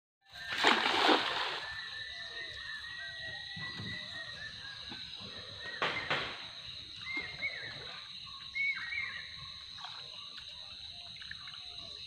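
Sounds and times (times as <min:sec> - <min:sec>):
net splashing onto water: 0:00.4 - 0:01.8.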